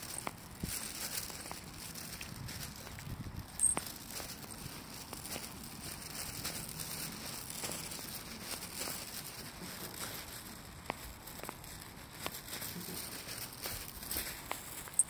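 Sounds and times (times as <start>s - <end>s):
rustling hiss: 0.0s - 15.0s
footsteps on stone paving: 10.8s - 12.4s.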